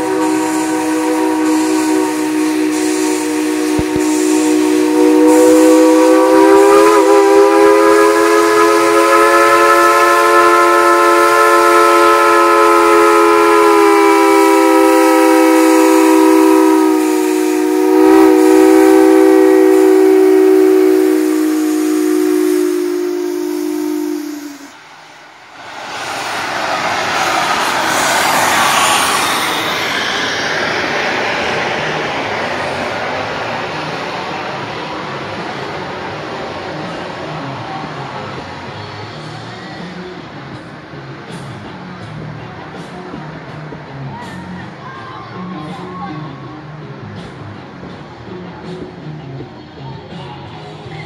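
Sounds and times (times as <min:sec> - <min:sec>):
steam whistle blast: 0:00.0 - 0:24.8
hiss of steam: 0:00.0 - 0:43.1.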